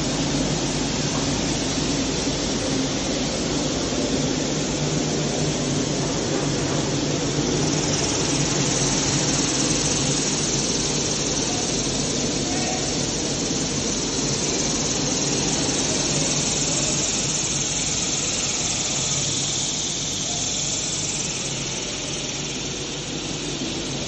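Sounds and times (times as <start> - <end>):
continuous machine hiss: 0.0 - 24.0
machine mechanical hum: 0.0 - 24.0.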